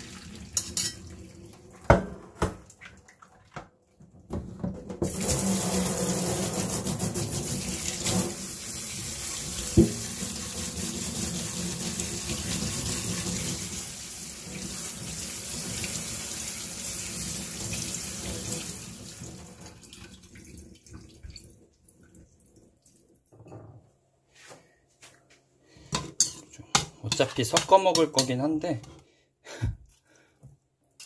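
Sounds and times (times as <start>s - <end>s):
water running: 0.0s - 3.6s, 5.0s - 23.5s.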